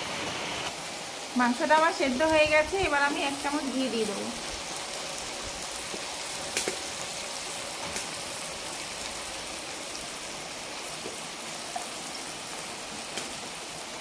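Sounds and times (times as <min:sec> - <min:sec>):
steady hiss: 0:00.0 - 0:14.0.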